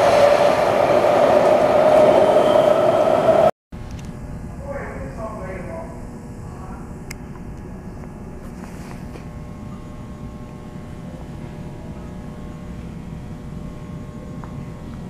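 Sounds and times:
train rumble: 0.0 - 3.5.

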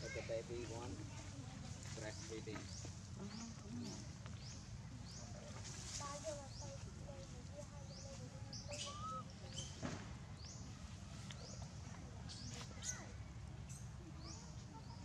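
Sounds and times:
faint squeaky calls: 8.5 - 9.8, 12.3 - 13.8
high rising chirps: 8.7 - 9.3.

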